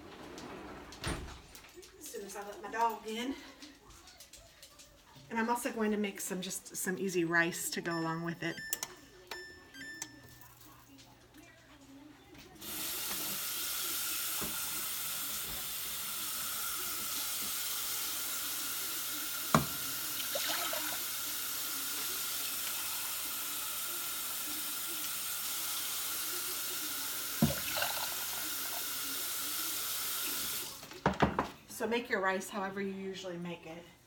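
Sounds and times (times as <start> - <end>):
kitchen tap running: 12.6 - 31.4.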